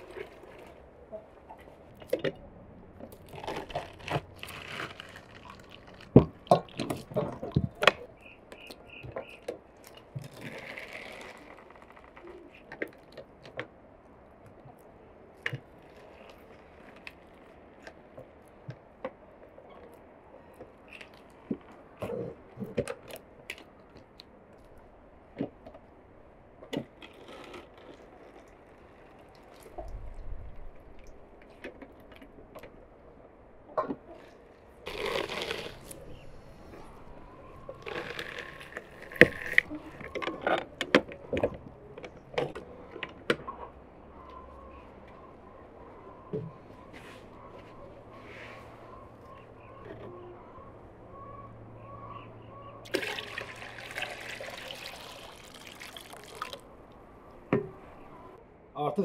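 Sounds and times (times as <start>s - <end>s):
fruit crunching and squishing: 3.0s - 7.8s, 34.2s - 41.0s, 53.0s - 56.6s.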